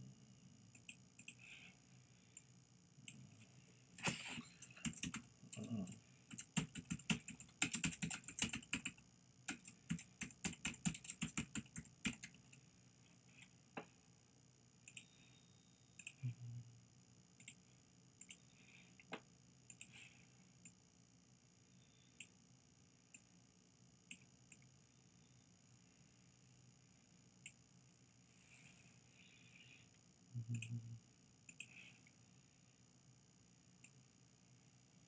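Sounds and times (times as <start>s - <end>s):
computer keyboard typing: 4.6s - 12.6s.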